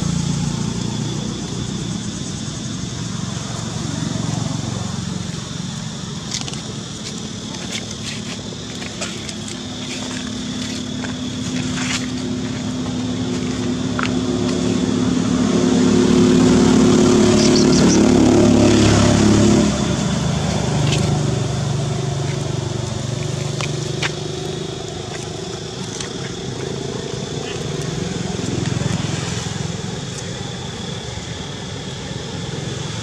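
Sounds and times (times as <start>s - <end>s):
lower engine sound: 0.0s - 33.0s
vehicle engine passing: 9.8s - 30.9s.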